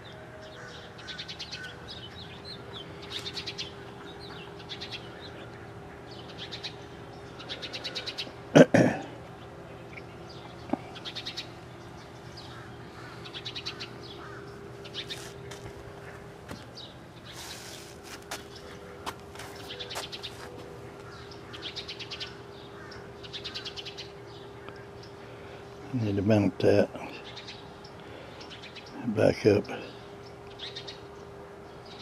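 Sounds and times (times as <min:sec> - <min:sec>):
faint steady hum: 0:00.0 - 0:32.0
small birds chirping in trills: 0:00.0 - 0:32.0.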